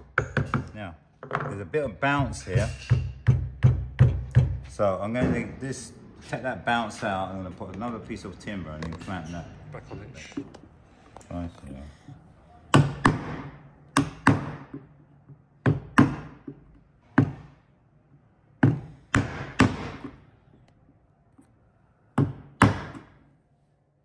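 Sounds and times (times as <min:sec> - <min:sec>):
mallet striking chisel: 0:02.6 - 0:04.6, 0:12.7 - 0:14.9, 0:15.6 - 0:17.6, 0:18.6 - 0:20.2, 0:22.2 - 0:23.2.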